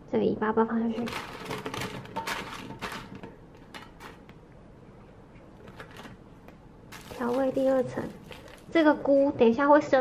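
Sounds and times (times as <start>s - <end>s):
parchment paper rustling: 1.0s - 4.3s, 5.6s - 6.2s, 6.9s - 9.0s.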